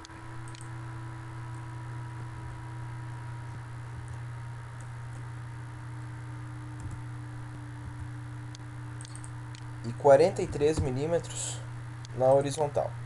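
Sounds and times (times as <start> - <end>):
low electrical hum: 0.0 - 13.0
computer mouse clicks: 0.5 - 0.7, 7.9 - 9.7.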